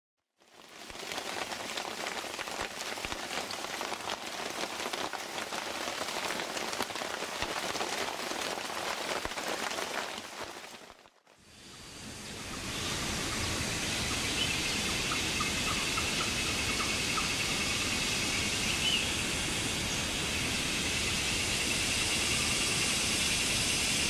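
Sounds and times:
heavy rain falling: 0.4 - 11.1
raindrops ticking: 0.4 - 11.1.

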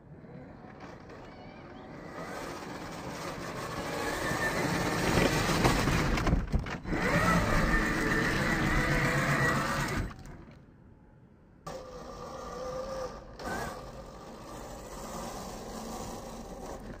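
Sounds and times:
electric motor whining: 6.8 - 10.2.

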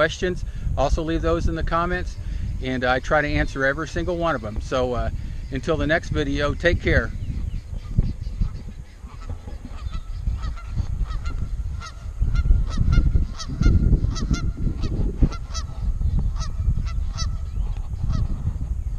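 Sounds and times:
geese honking: 5.5 - 18.3
low rumble: 6.8 - 18.9.

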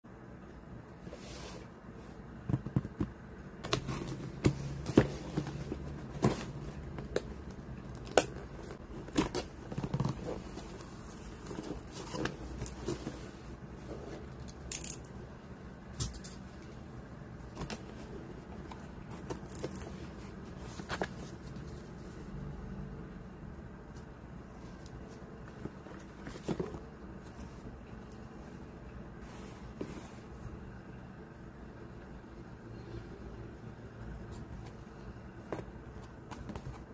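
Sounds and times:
cardboard and paper rustling: 1.0 - 14.5, 17.4 - 22.2, 24.5 - 27.9, 34.3 - 36.9.

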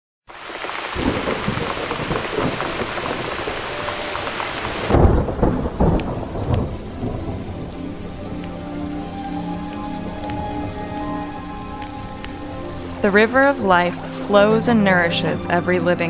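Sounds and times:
heavy rain falling: 0.3 - 16.0
rumbling thunder: 0.6 - 13.0.

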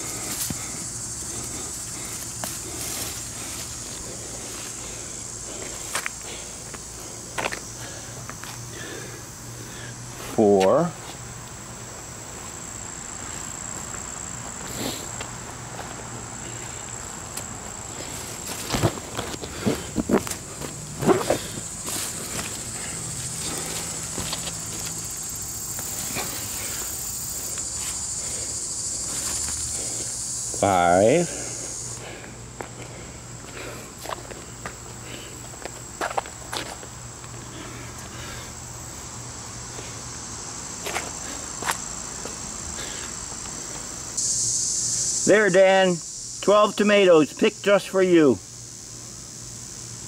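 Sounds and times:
leaves and stems rustling: 0.0 - 8.7, 15.7 - 30.6
loud high hiss: 0.0 - 10.8, 11.6 - 15.5, 16.1 - 35.4, 37.5 - 50.0
high insect drone: 0.0 - 50.0.

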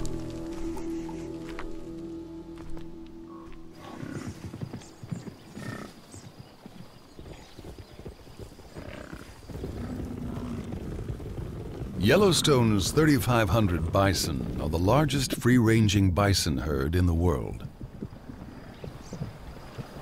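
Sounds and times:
hoofbeats of a herd: 3.5 - 15.8, 17.4 - 20.0.

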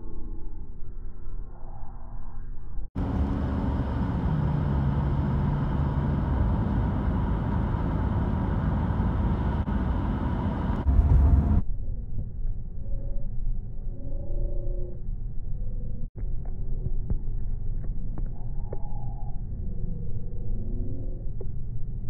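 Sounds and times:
car road and engine rumble: 2.9 - 11.7.

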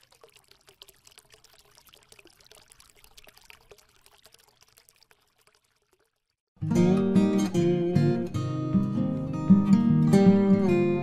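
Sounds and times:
liquid pouring and trickling: 0.0 - 6.5.

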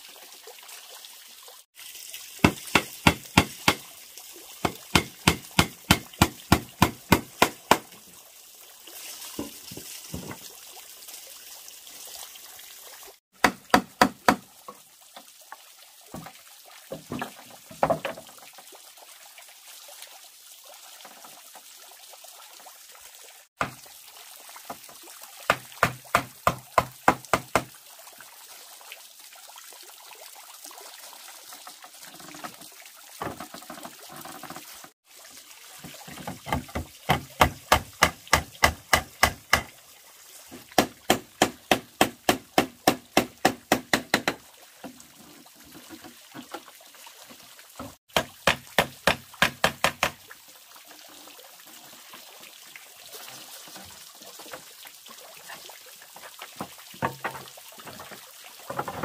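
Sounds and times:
fountain splashing into pond: 0.0 - 59.0
wood being knocked rapidly: 2.4 - 3.8, 4.6 - 7.9, 13.4 - 14.4, 25.5 - 27.7, 36.2 - 39.7, 40.8 - 44.4, 48.1 - 50.2.

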